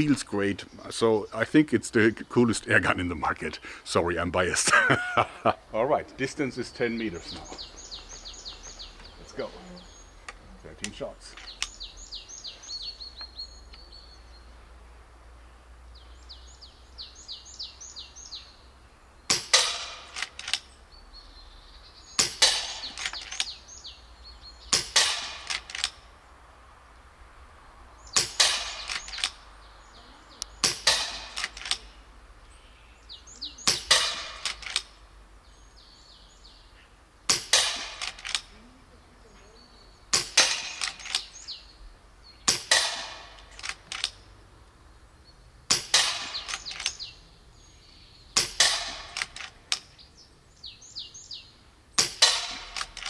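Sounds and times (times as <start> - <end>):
birds chirping: 0.0 - 53.0
air rifle shots: 19.3 - 20.7, 22.2 - 23.4, 24.7 - 26.1, 28.2 - 29.4, 30.6 - 31.9, 33.6 - 35.0, 37.3 - 38.5, 40.1 - 41.3, 42.5 - 44.2, 45.7 - 47.0, 48.4 - 49.8, 52.0 - 53.0.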